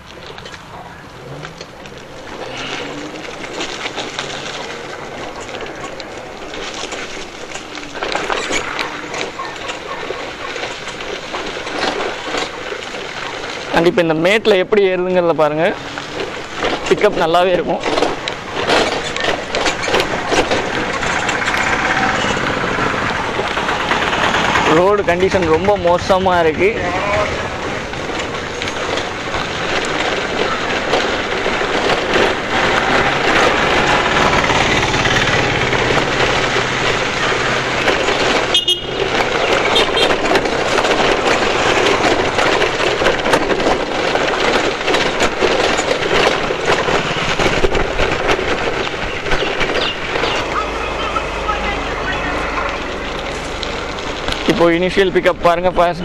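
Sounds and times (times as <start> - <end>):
scooter rattling over bumps: 0.0 - 56.0.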